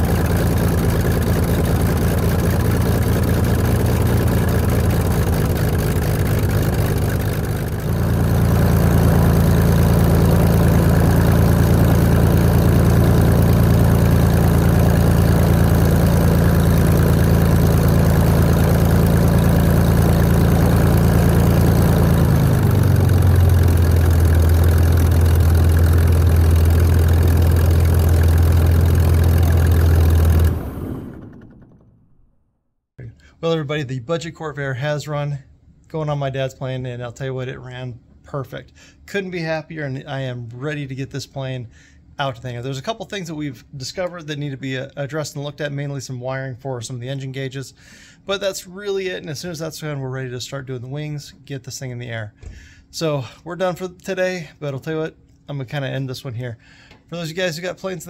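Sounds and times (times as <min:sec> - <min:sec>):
propeller aircraft engine running: 0:00.0 - 0:32.6.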